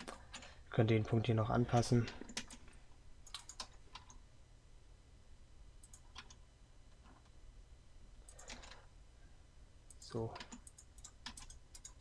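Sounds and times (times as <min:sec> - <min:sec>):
low steady hum: 0:00.0 - 0:12.0
computer mouse and keyboard clicks: 0:03.3 - 0:04.2, 0:08.3 - 0:08.8, 0:09.9 - 0:12.0.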